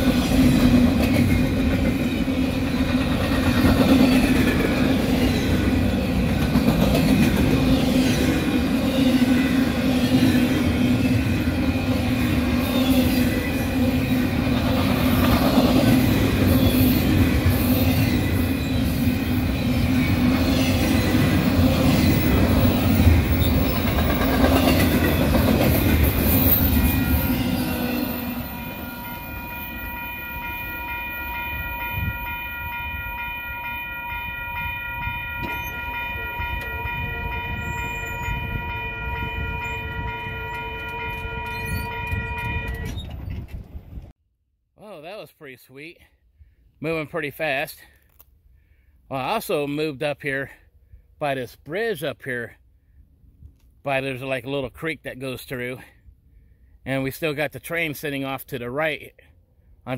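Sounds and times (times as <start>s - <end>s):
train wheels rumbling on rail: 0.0s - 32.4s, 34.5s - 44.1s
steady ringing tone: 28.4s - 42.7s.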